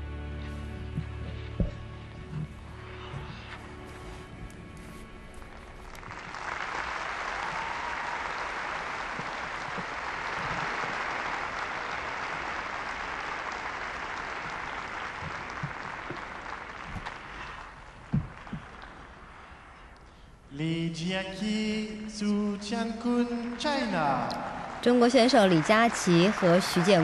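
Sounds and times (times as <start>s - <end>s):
audience applauding: 5.3s - 19.8s, 23.3s - 27.0s.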